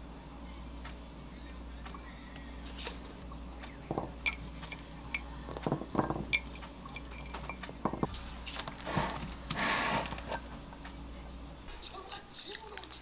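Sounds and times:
glass jar clinking: 3.9s - 10.5s.

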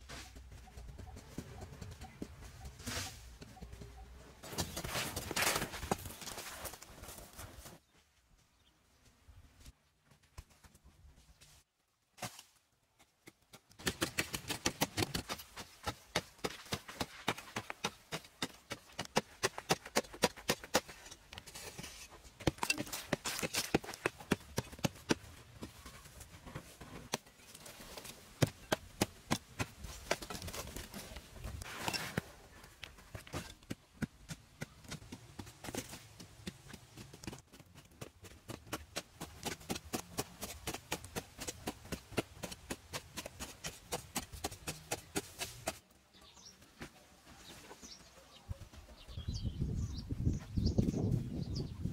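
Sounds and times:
hand tools striking stony soil: 13.0s - 45.9s.

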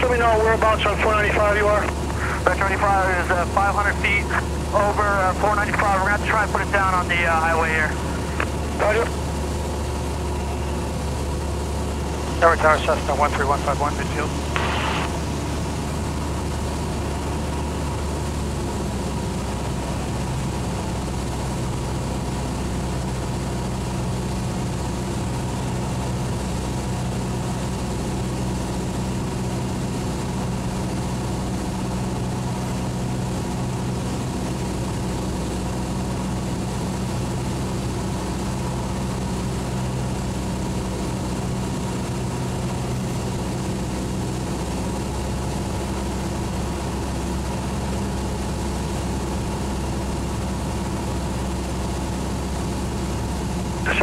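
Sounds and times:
propeller plane engine droning: 0.0s - 54.0s.

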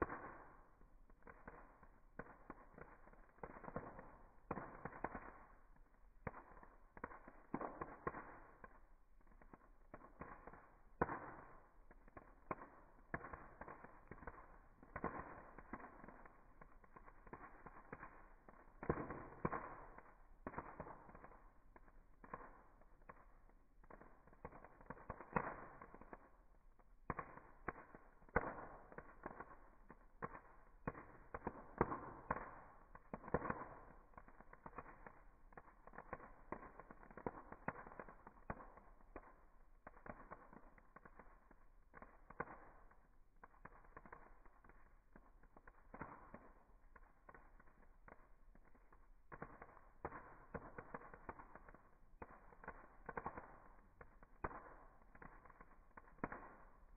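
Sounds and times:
campfire crackling and popping: 0.0s - 56.9s.

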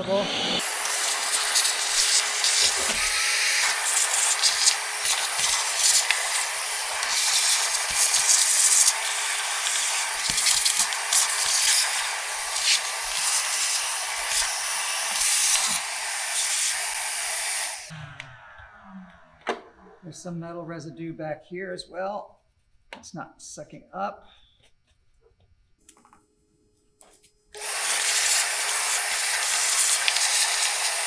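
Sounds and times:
shop vac whining: 0.0s - 20.3s, 27.5s - 31.0s
clicks of bits in hose: 0.8s - 16.8s, 27.6s - 31.0s.

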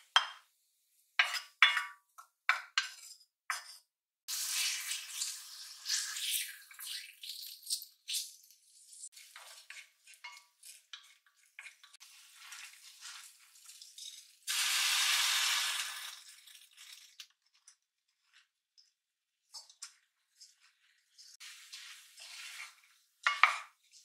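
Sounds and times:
wooden spoon scraping a pot: 1.2s - 3.9s, 8.2s - 14.4s, 19.6s - 24.0s
light sizzling in oil: 4.3s - 18.8s, 19.5s - 24.0s
rice landing in hot oil sizzling: 12.1s - 17.1s.

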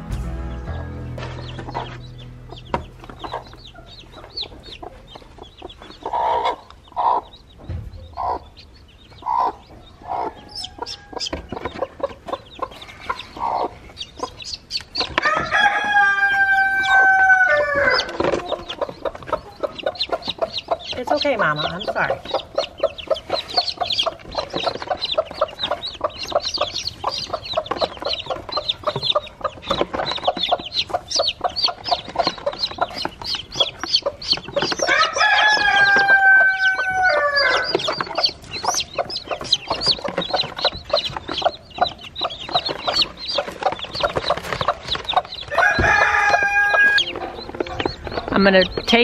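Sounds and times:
chicks peeping: 0.0s - 49.0s
hen clucking: 0.6s - 49.0s
chicken long drawn-out call: 15.2s - 18.6s, 34.9s - 37.7s, 45.6s - 47.4s.

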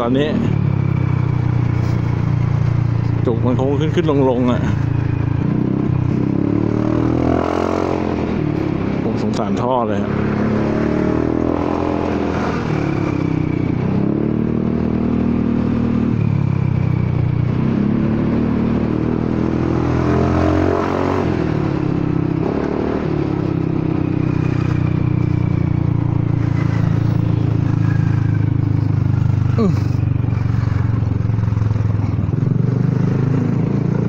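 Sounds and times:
scooter engine revving: 17.5s - 34.0s.

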